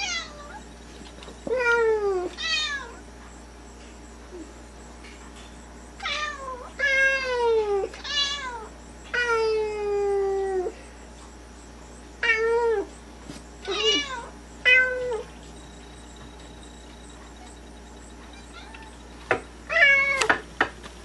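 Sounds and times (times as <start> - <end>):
cat meowing: 13.6 - 15.3, 18.3 - 19.0, 19.7 - 20.4.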